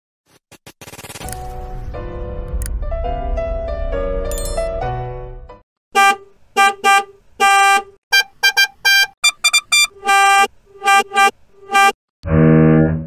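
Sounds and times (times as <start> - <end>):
car horn honking: 6.0 - 12.0.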